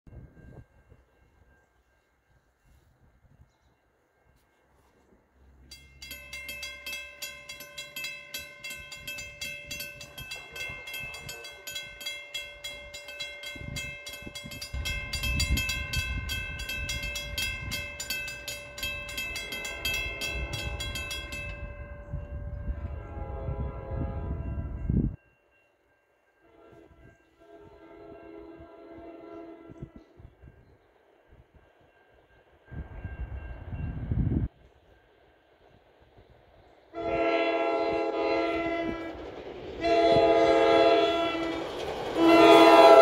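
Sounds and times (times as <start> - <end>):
train rumble: 0.1 - 25.2, 26.2 - 43.0
crossing warning bell ringing: 0.1 - 35.2, 36.9 - 43.0
train horn: 22.4 - 25.0, 26.4 - 30.3, 36.9 - 39.2, 39.8 - 43.0.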